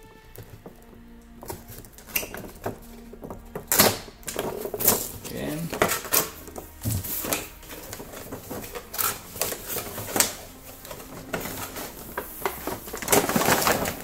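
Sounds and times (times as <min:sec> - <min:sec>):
cardboard box crinkling rustles: 0:01.5 - 0:14.0.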